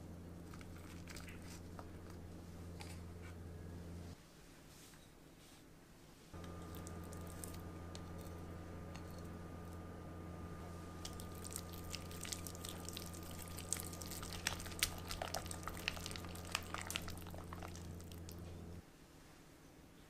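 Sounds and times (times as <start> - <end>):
steady low hum: 0.0 - 4.2, 6.4 - 18.8.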